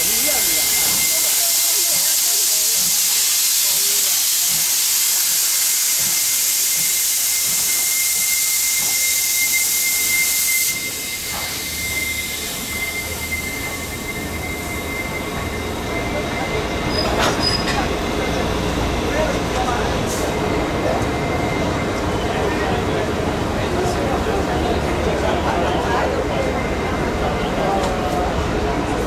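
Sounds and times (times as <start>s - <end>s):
steam locomotive venting steam: 0.0s - 29.0s
train rumbling: 0.0s - 29.0s
thin whistling tone: 5.9s - 18.4s.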